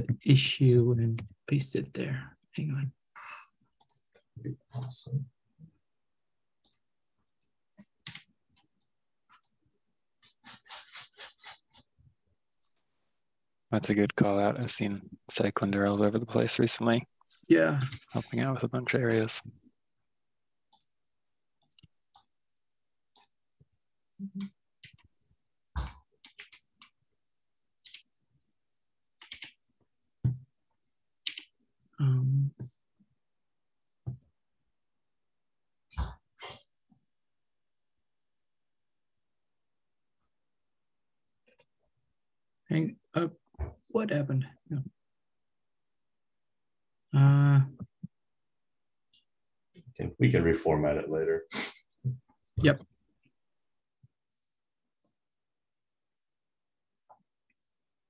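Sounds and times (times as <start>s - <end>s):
computer keyboard typing: 6.6s - 9.6s, 26.2s - 27.0s, 27.8s - 28.1s, 29.2s - 29.6s, 31.2s - 31.5s.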